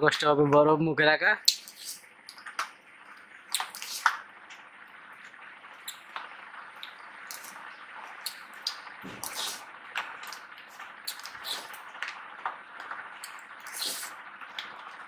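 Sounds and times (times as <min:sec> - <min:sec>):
mouth noises of eating: 0:08.2 - 0:10.4, 0:11.0 - 0:11.8, 0:13.2 - 0:14.7.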